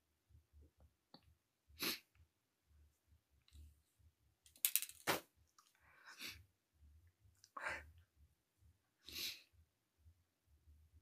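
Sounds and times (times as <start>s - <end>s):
woman sniffing and breathing: 9.0s - 9.6s.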